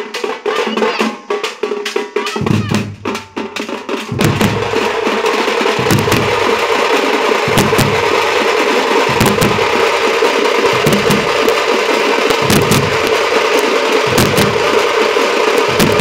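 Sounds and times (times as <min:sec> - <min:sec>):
frame drums struck with sticks: 0:00.0 - 0:16.0
bass drum booms: 0:04.1 - 0:06.7, 0:07.4 - 0:08.5, 0:09.1 - 0:10.0, 0:10.7 - 0:11.6, 0:12.4 - 0:13.3, 0:14.1 - 0:14.8, 0:15.7 - 0:16.0.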